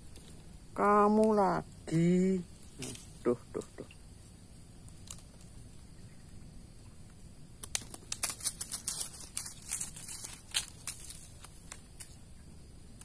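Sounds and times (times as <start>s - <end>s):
handling crackles and rustles: 4.8s - 5.9s, 7.1s - 13.0s.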